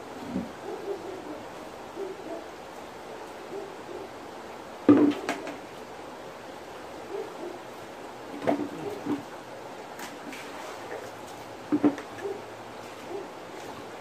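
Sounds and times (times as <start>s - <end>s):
running water: 0.0s - 14.0s
plastic bucket knocking on concrete: 11.7s - 12.0s.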